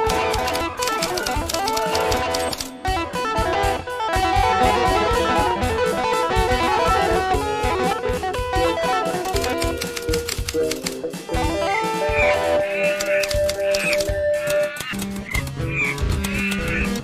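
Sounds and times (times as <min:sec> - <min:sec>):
plucked guitar notes: 0:00.0 - 0:10.0
steady beat: 0:00.0 - 0:17.0.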